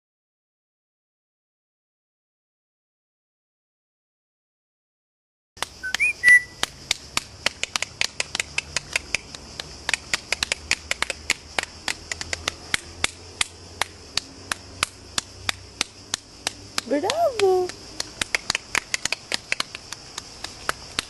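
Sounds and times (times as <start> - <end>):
steady sharp clicks: 5.6 - 6.0, 6.6 - 21.0
short rising whistle: 5.8 - 6.6.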